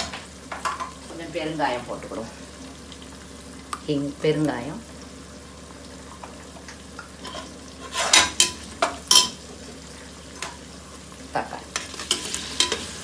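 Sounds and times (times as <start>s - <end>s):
onions sizzling in oil: 0.0s - 13.0s
metal spatula scraping pot: 7.2s - 9.4s, 11.7s - 13.0s.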